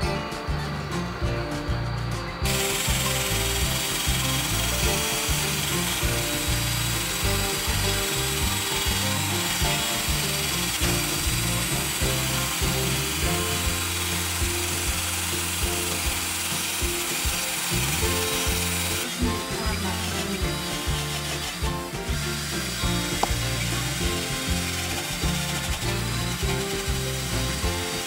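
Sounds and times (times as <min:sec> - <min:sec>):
background music with steady beat: 0:00.0 - 0:28.0
power drill grinding mortar: 0:02.4 - 0:28.0.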